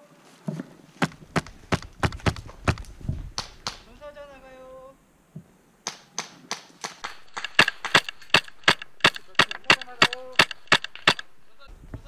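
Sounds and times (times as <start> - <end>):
airsoft gun shots: 5.8 - 11.4.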